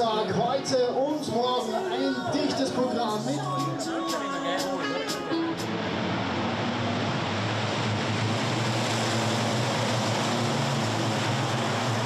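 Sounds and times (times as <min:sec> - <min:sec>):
trucks passing at speed: 0:04.6 - 0:12.0.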